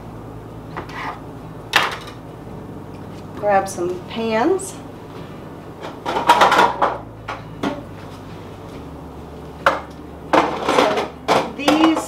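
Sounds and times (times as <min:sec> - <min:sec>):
metal pans clattering: 0:05.9 - 0:07.0, 0:10.3 - 0:12.0.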